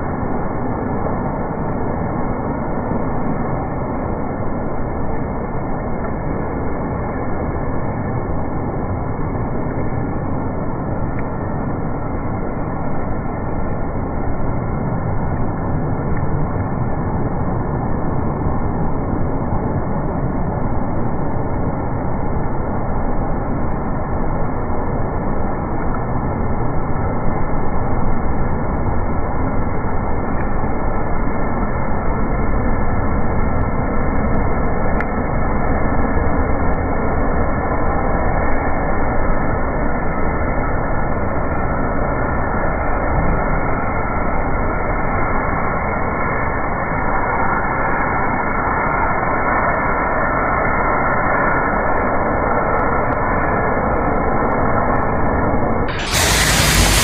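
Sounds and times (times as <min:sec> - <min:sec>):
heavy rain: 0:00.0 - 0:57.0
rainwater rushing: 0:55.9 - 0:57.0.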